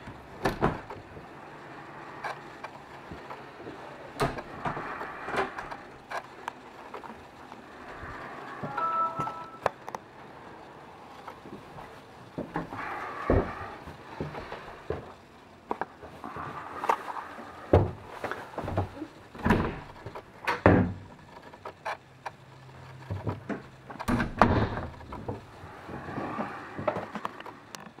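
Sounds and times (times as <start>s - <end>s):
cabin doors bumping and latching: 0.0s - 1.2s, 17.7s - 21.2s, 23.3s - 25.5s.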